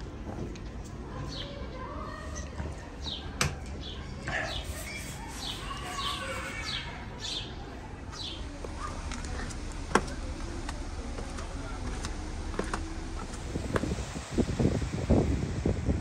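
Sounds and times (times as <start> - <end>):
low background hum: 0.0 - 16.0
small birds chirping: 0.7 - 12.1.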